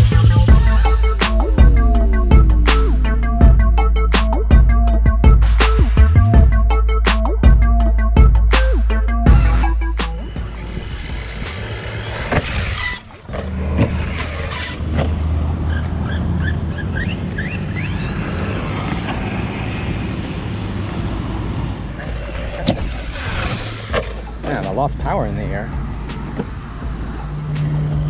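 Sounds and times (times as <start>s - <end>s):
steady low rumble: 0.3s - 8.4s.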